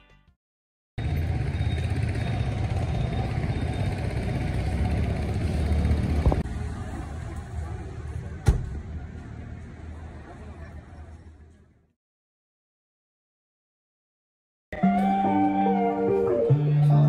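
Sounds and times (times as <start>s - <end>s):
street traffic rumble: 1.0s - 11.9s.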